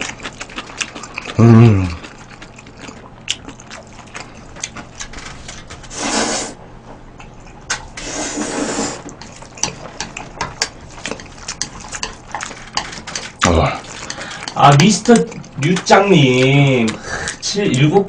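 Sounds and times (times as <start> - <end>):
wet chewing and mouth clicks: 0.0 - 5.6, 9.0 - 18.0
person slurping noodles: 5.9 - 6.6, 8.0 - 9.1.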